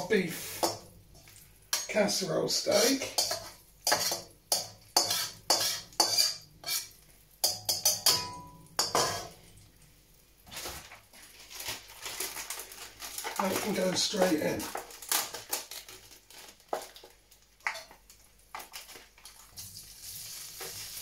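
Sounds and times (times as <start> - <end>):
spatula scraping a metal wok: 0.2 - 9.4.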